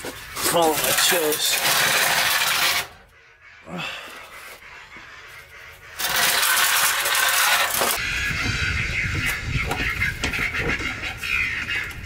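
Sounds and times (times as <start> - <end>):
metal pipework scraping on concrete: 0.0 - 3.1, 6.0 - 8.0.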